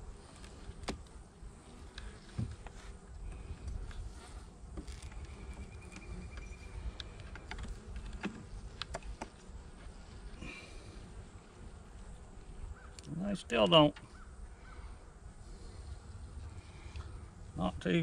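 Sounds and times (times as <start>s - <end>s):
honeybees buzzing: 0.0s - 18.0s
hive tool clicking and scraping: 1.8s - 9.6s.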